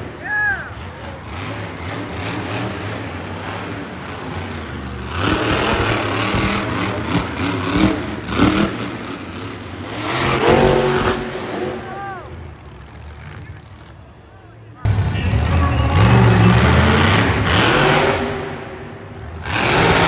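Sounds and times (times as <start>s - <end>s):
monster truck engine revving: 0.0s - 20.0s.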